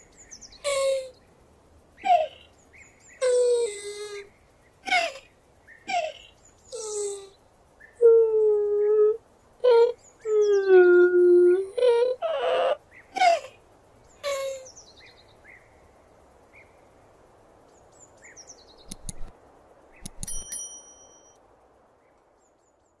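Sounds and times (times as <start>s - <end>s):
sharp clicks: 18.8s - 19.3s, 20.0s - 20.5s.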